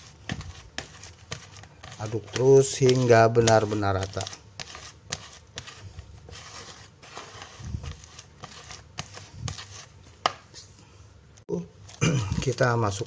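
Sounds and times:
paddle scraping bait mix: 0:00.0 - 0:10.0.

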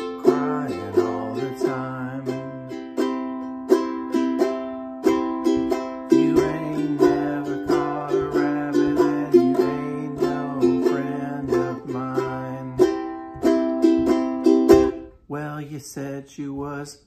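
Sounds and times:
ukulele strumming chords: 0:00.0 - 0:16.8
man singing low: 0:00.2 - 0:02.8, 0:06.1 - 0:13.0, 0:15.3 - 0:17.0.

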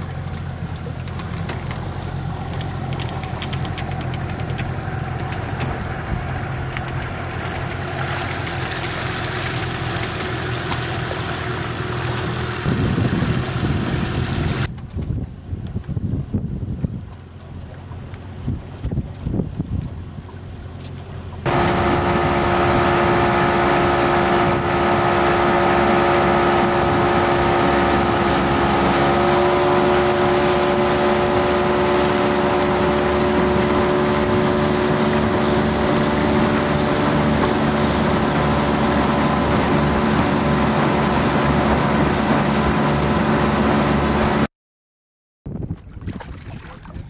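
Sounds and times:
boat on choppy water: 0:00.0 - 0:44.5, 0:45.5 - 0:47.0
outboard motor running: 0:00.0 - 0:44.5
wind noise on microphone: 0:12.4 - 0:17.2, 0:18.3 - 0:20.2, 0:45.5 - 0:47.0.

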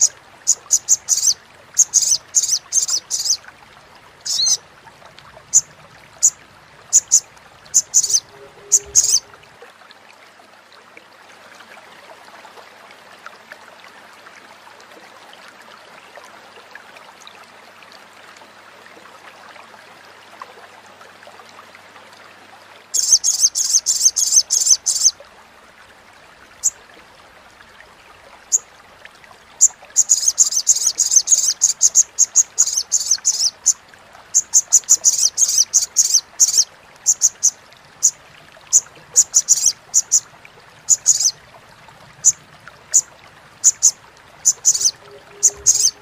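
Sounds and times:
bird chattering call: 0:00.0 - 0:03.4, 0:04.3 - 0:04.6, 0:05.6 - 0:09.3, 0:40.9 - 0:41.3, 0:43.6 - 0:46.0.

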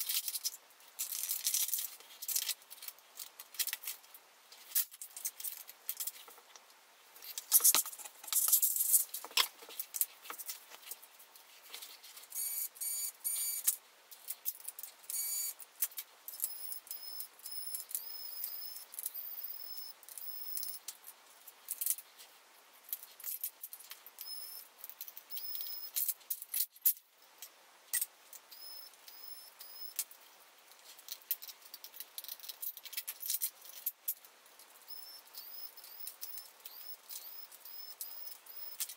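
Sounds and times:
clatter of screws and parts: 0:07.2 - 0:11.0, 0:30.8 - 0:38.9
electric screwdriver whine: 0:34.9 - 0:38.8.

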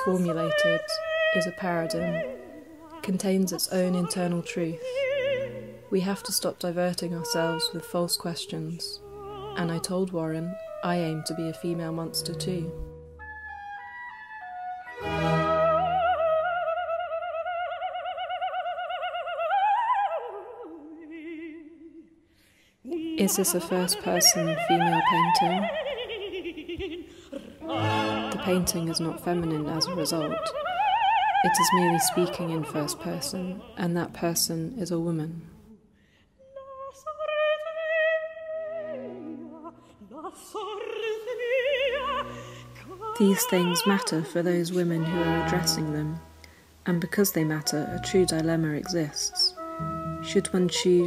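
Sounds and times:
operatic singing: 0:00.0 - 0:12.8, 0:14.9 - 0:22.1, 0:22.9 - 0:35.9.

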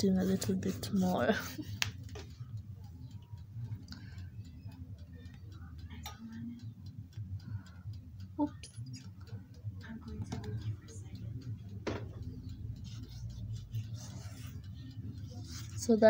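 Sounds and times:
fingers patting dough: 0:00.0 - 0:02.3
low hum: 0:00.0 - 0:16.0.

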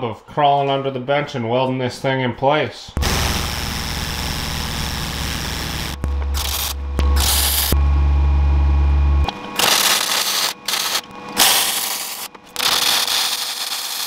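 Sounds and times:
welder crackling and hissing: 0:03.0 - 0:07.8, 0:09.6 - 0:14.0
deep electrical hum: 0:03.0 - 0:14.0.

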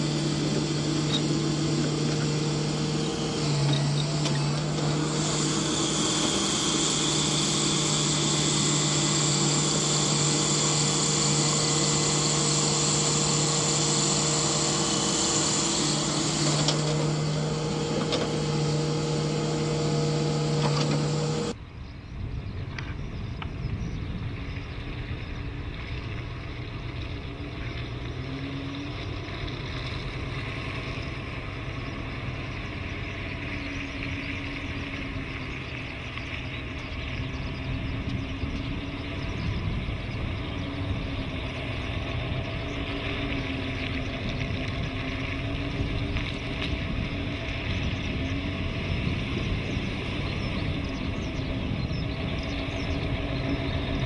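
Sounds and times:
excavator diesel engine running: 0:00.0 - 0:21.6, 0:27.3 - 0:54.0
high whine: 0:00.0 - 0:21.6
truck engine idling: 0:00.0 - 0:21.6.

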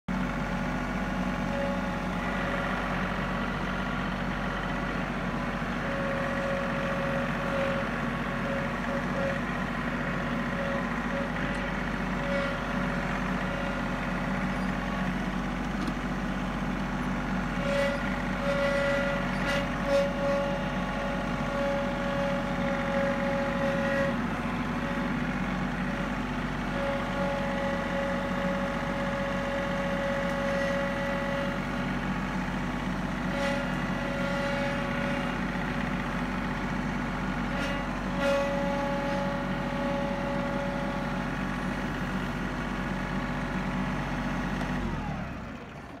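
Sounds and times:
tractor diesel engine running: 0:00.0 - 0:46.0.

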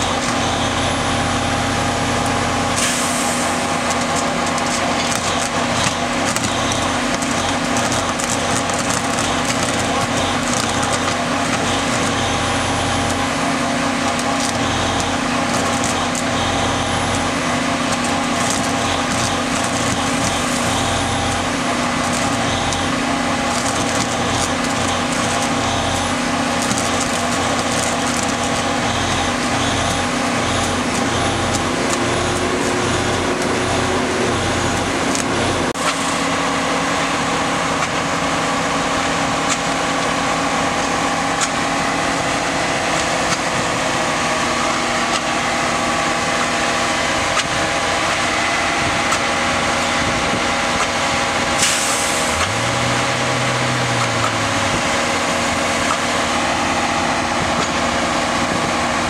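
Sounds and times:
truck engine and machinery running: 0:00.0 - 0:59.0
hiss of air: 0:02.8 - 0:03.7, 0:51.6 - 0:52.4
low pulsing: 0:14.6 - 0:37.8.

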